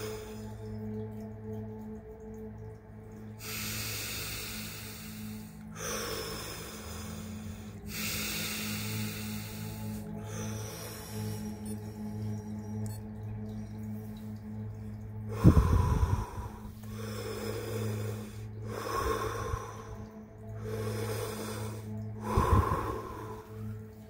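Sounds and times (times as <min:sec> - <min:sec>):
low background music drone: 0:00.0 - 0:24.0
man breathing deeply: 0:03.4 - 0:12.4, 0:15.3 - 0:24.0.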